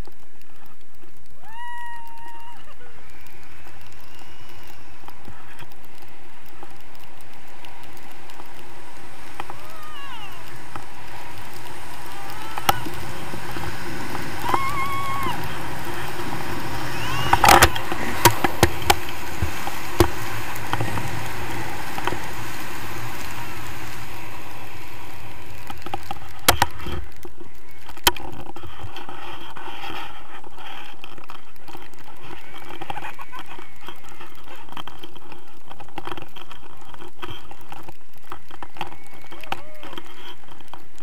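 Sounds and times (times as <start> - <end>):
wind rushing over microphone: 0.0 - 41.0.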